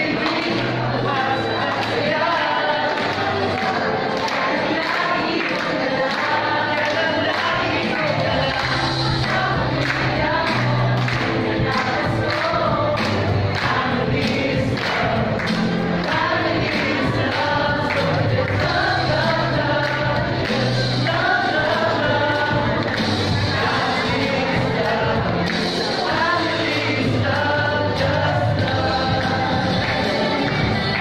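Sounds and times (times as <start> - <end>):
group of voices singing in chorus: 0.0 - 31.0
backing track with bass and beat: 7.2 - 31.0.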